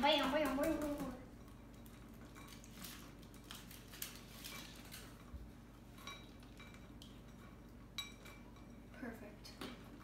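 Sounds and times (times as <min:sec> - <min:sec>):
foil wrapper rustling: 0:02.5 - 0:05.2.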